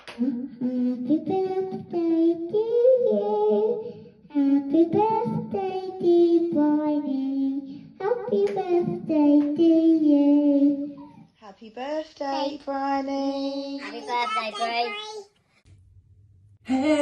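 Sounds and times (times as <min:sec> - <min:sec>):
girl singing slow tune: 0:00.0 - 0:11.4, 0:12.2 - 0:14.8, 0:16.7 - 0:17.0.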